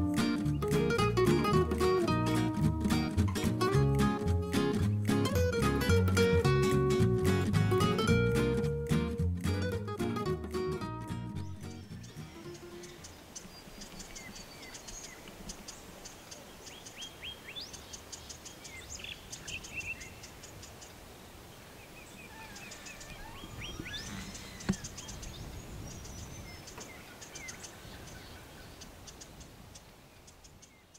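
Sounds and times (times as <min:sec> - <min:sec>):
birds chirping and whistling: 0:11.3 - 0:15.2, 0:22.5 - 0:28.4.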